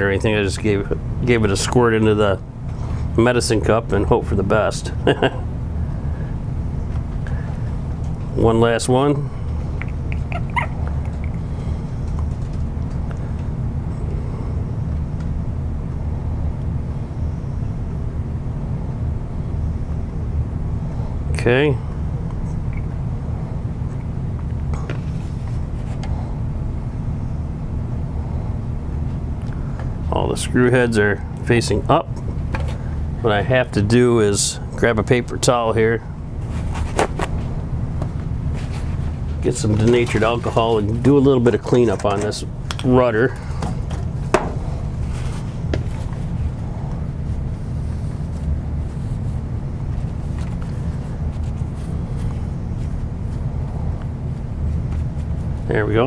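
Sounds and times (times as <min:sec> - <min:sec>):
faint hum: 0:00.0 - 0:56.0
paper towel rustling: 0:44.7 - 0:55.8.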